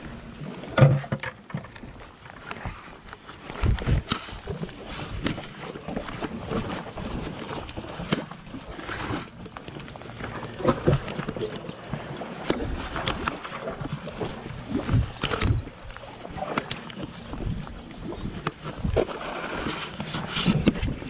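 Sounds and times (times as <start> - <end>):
wind buffeting microphone: 3.4 - 7.9, 12.5 - 21.0.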